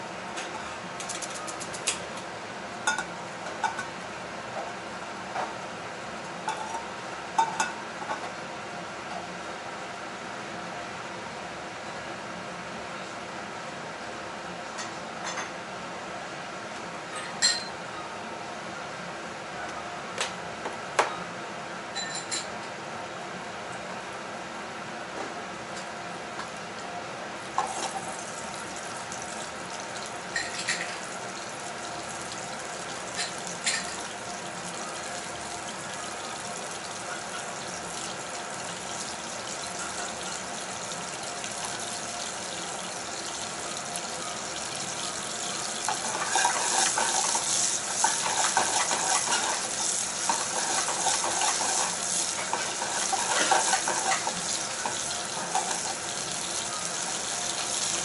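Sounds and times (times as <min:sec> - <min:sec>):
mushrooms sizzling in oil: 0:27.6 - 0:58.0.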